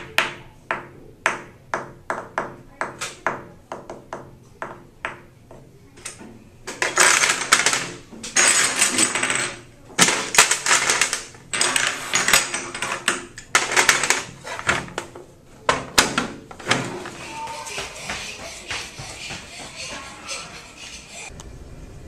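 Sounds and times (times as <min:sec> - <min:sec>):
game pieces clicking and clattering: 0:06.7 - 0:15.0.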